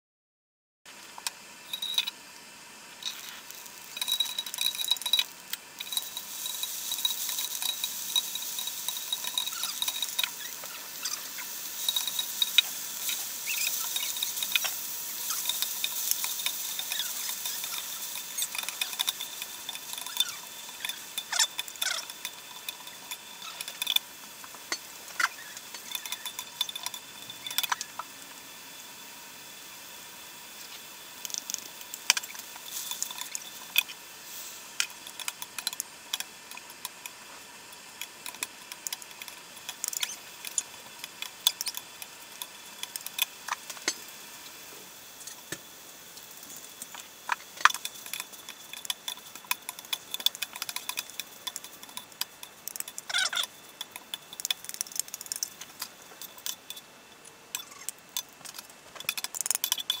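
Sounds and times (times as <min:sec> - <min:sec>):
light sizzle: 0:00.9 - 1:00.0.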